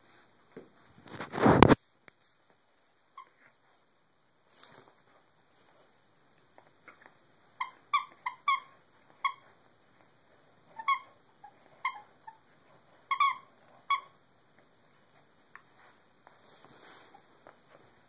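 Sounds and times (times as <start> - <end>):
dog toy squeaking: 7.6 - 9.5, 10.7 - 12.4, 13.0 - 14.2.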